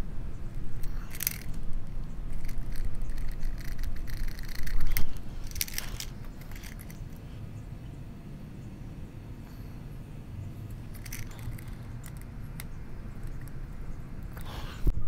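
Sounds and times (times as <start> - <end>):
screen scraping and crackling: 0.6 - 7.3, 10.9 - 13.6.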